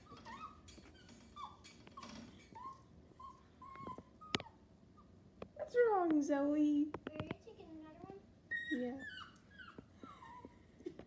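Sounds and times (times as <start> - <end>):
small dog whining: 0.0 - 5.2, 8.5 - 10.7.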